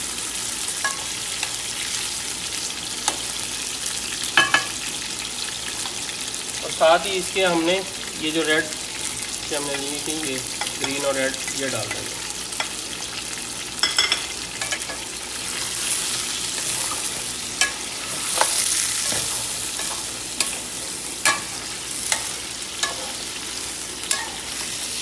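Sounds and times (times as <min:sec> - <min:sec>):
chicken sizzling in hot oil: 0:00.0 - 0:25.0
spatula scraping a metal pan: 0:16.5 - 0:23.3.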